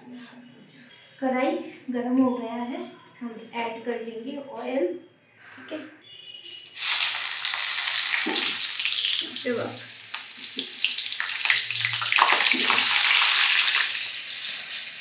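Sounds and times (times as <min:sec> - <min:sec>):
hot oil sizzling: 0:06.3 - 0:15.0.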